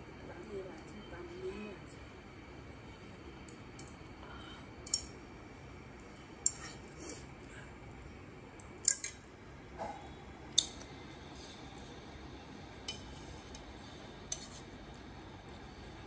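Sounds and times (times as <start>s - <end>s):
utensils clicking and scraping: 12.9s - 14.7s.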